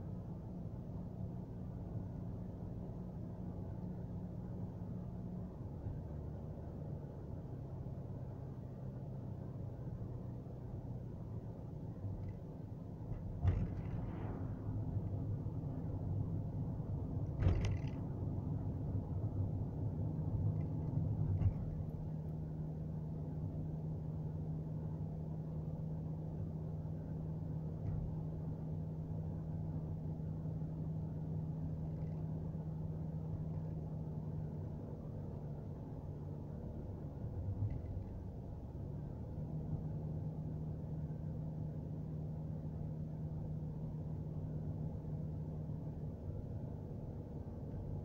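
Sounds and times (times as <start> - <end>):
car engine and road noise: 0.0 - 48.0
sharp thump: 13.1 - 14.5, 17.4 - 18.0.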